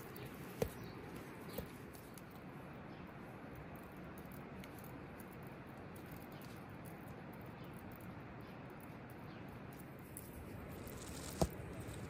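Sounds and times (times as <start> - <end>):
bread dough handling: 10.2 - 12.0.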